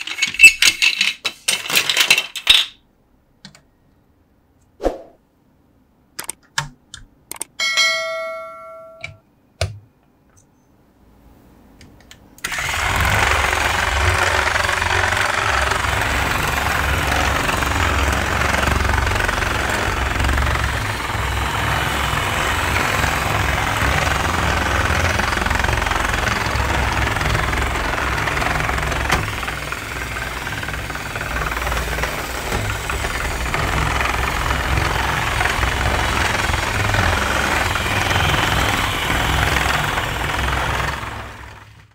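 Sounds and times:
toy motor whirring: 12.4s - 41.8s.

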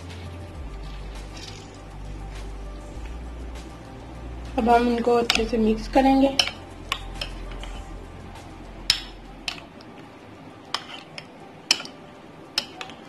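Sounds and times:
spoon clinking on ceramic bowl: 6.3s - 7.8s, 10.7s - 12.0s, 12.6s - 13.0s.

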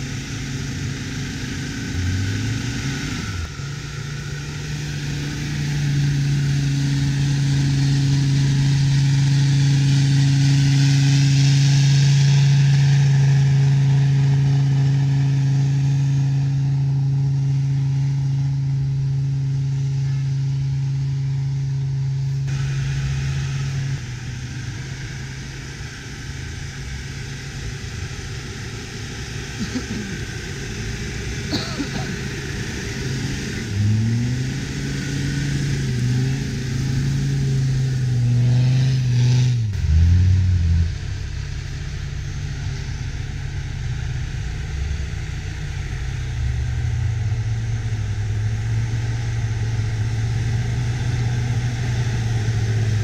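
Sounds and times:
diesel engine revving: 0.0s - 53.0s
tyres churning snow: 0.0s - 53.0s.

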